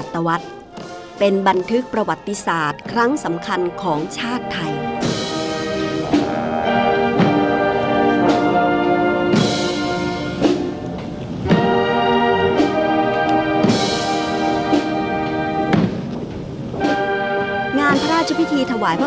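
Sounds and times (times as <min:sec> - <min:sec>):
brass band playing march: 0:00.6 - 0:19.0
drum strokes: 0:02.8 - 0:19.0.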